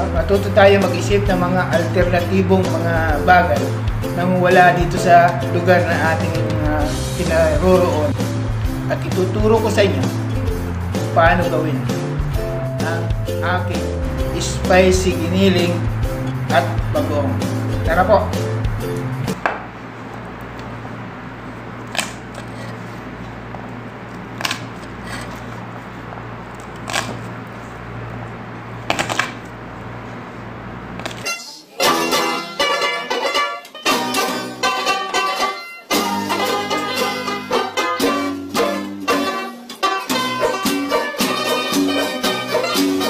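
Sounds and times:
plucked strings music: 0:00.0 - 0:19.4, 0:31.2 - 0:43.0
steady low hum: 0:00.0 - 0:31.3.

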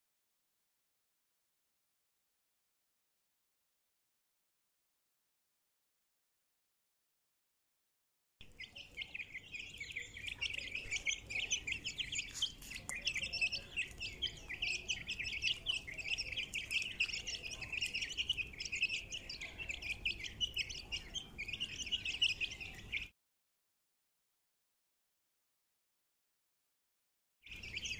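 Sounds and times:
chicks peeping: 0:08.4 - 0:23.1, 0:27.5 - 0:27.9.

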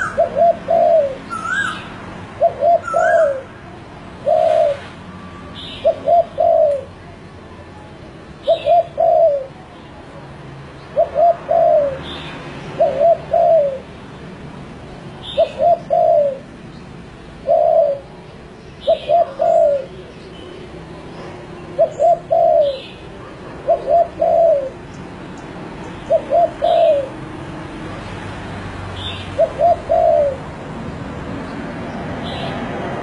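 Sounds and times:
dove cooing: 0:00.0 - 0:04.9, 0:05.6 - 0:07.0, 0:08.4 - 0:09.6, 0:11.0 - 0:13.9, 0:15.2 - 0:16.5, 0:17.3 - 0:20.1, 0:21.6 - 0:25.0, 0:26.0 - 0:27.3, 0:29.0 - 0:30.6.

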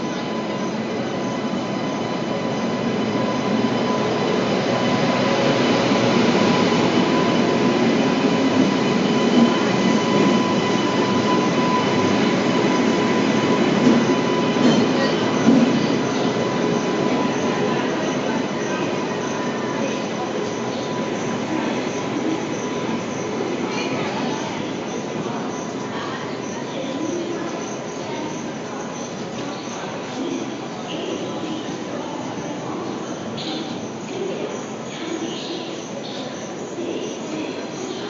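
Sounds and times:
train running noise: 0:00.0 - 0:38.0
train clanks: 0:08.3 - 0:30.3.

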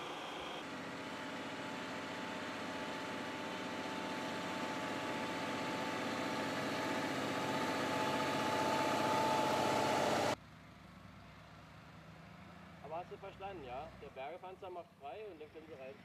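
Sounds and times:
heavy vehicle engine whining: 0:00.0 - 0:10.4.

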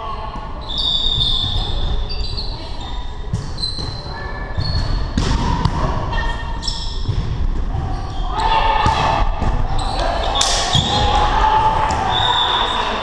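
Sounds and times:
shoes squeaking on gym floor: 0:00.6 - 0:05.2
volleyball hits: 0:04.6 - 0:13.0.

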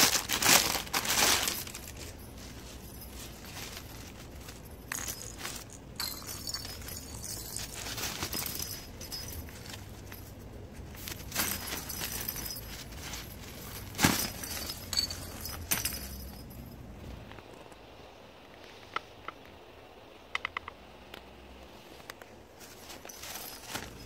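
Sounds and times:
nylon fabric rustling: 0:00.0 - 0:16.6, 0:22.5 - 0:24.0
light jingling: 0:00.0 - 0:17.3, 0:22.6 - 0:24.0.

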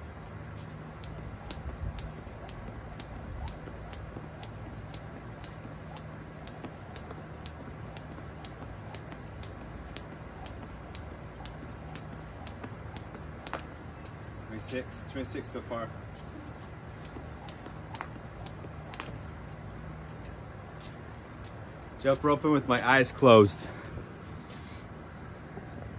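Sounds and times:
low steady hum: 0:00.0 - 0:25.9
jump rope slapping concrete: 0:00.6 - 0:13.8, 0:16.9 - 0:19.2.

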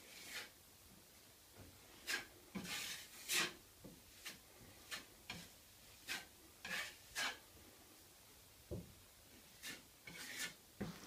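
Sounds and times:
drywall knife scraping compound: 0:00.0 - 0:00.6, 0:02.0 - 0:07.4, 0:09.4 - 0:11.0.

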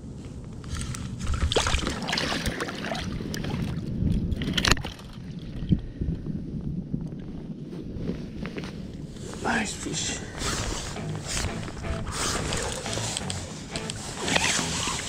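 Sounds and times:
fish thrashing in water: 0:01.2 - 0:05.6, 0:12.4 - 0:13.0.

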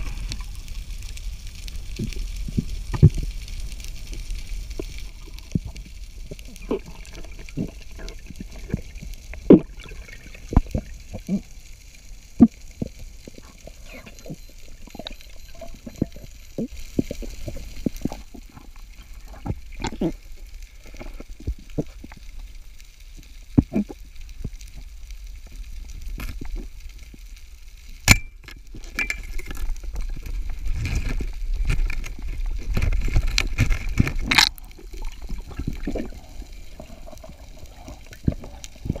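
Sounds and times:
low rumble of moving water: 0:00.0 - 0:39.0
underwater clicks and pops: 0:04.7 - 0:11.4, 0:12.4 - 0:20.2, 0:23.5 - 0:24.6, 0:28.0 - 0:36.2.

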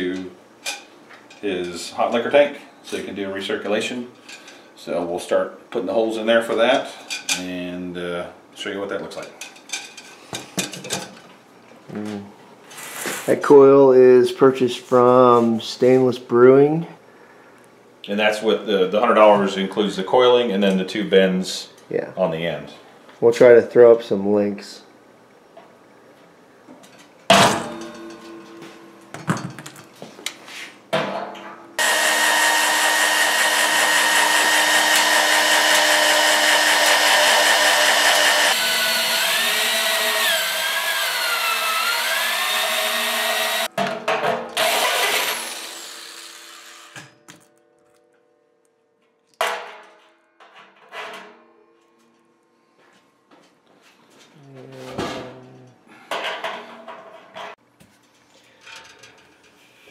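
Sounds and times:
electric drill boring through metal: 0:31.8 - 0:43.7, 0:44.6 - 0:47.0.

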